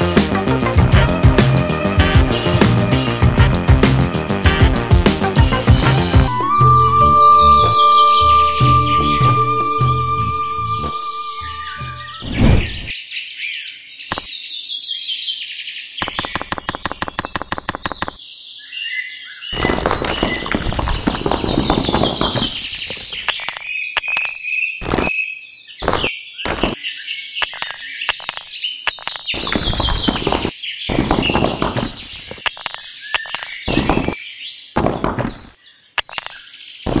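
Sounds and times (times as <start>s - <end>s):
birds chirping: 5.6s - 12.9s
quick clicks: 16.0s - 18.2s, 27.4s - 29.6s.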